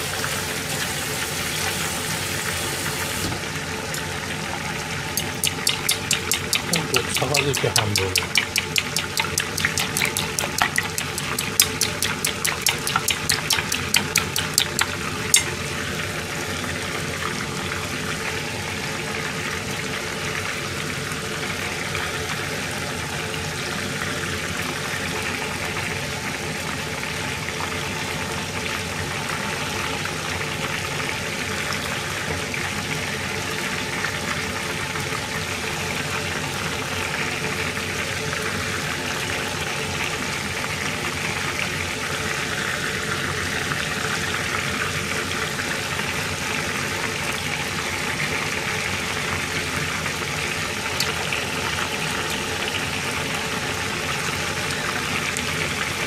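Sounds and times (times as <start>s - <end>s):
chopsticks beating egg in metal bowl: 5.2s - 15.5s.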